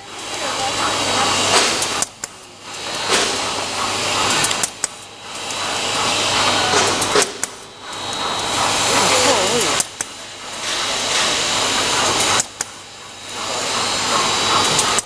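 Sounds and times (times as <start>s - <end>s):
machine humming: 0.0s - 15.0s
machine rushing noise: 0.0s - 15.0s
machine clicks: 4.2s - 5.7s.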